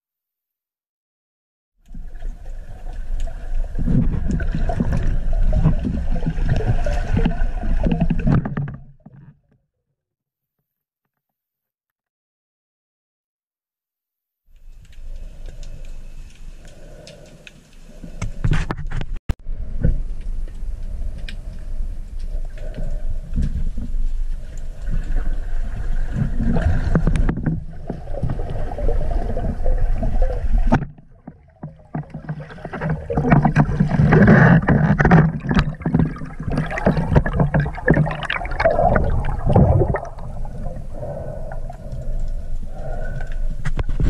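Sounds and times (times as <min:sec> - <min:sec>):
water rushing and bubbling: 0:01.9 - 0:09.1, 0:22.3 - 0:44.0.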